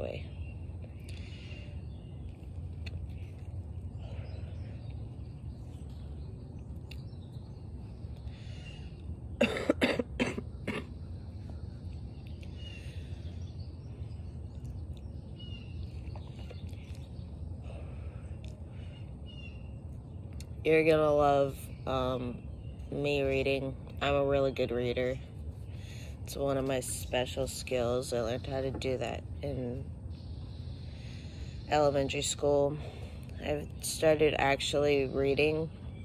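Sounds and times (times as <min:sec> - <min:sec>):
low background rumble: 0:00.0 - 0:36.0
person coughing: 0:09.4 - 0:10.9.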